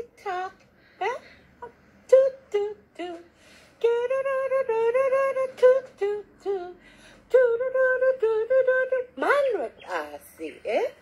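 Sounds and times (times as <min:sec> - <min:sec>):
woman singing: 0:00.0 - 0:11.0.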